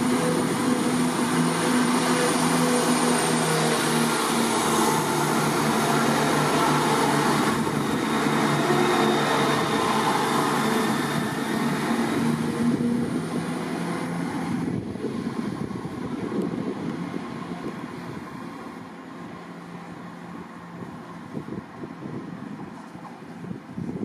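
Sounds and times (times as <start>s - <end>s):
train diesel engines droning: 0.0s - 24.0s.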